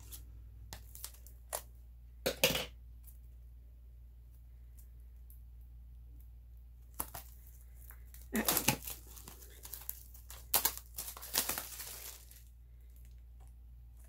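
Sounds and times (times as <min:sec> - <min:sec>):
plastic shrink wrap tearing: 0:06.9 - 0:13.1.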